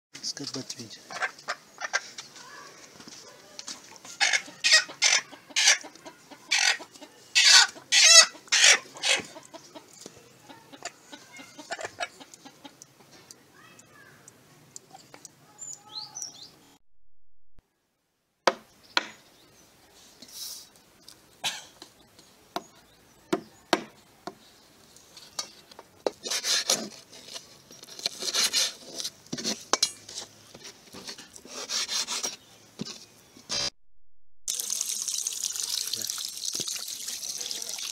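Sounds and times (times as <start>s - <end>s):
hen squawking and cackling: 1.1s - 2.1s, 4.1s - 9.9s, 10.5s - 12.8s.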